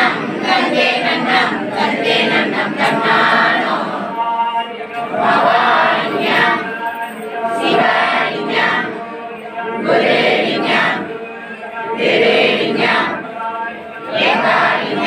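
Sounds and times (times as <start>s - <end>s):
worshippers chanting in unison: 0.0s - 15.0s.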